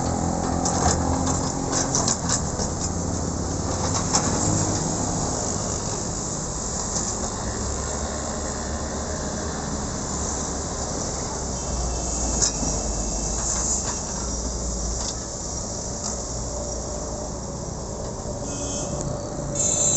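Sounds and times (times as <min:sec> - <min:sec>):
diesel engine rumbling: 0:00.0 - 0:19.9.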